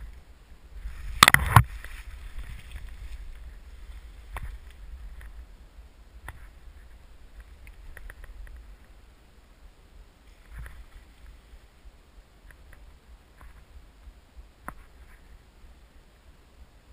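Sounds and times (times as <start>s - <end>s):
dry leaves rustling and crackling: 0.0s - 5.5s
low steady rumble: 0.0s - 16.9s.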